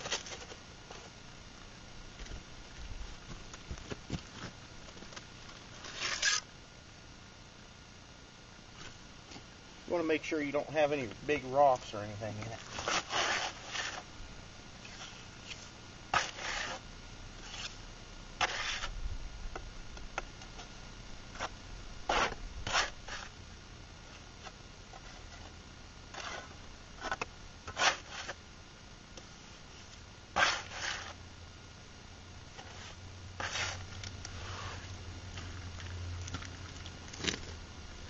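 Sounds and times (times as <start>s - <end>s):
trowel scraping mortar: 5.8s - 6.5s, 12.6s - 14.1s, 16.1s - 16.8s, 18.4s - 18.9s, 22.1s - 23.3s, 26.1s - 28.4s, 30.4s - 31.2s, 32.6s - 34.9s.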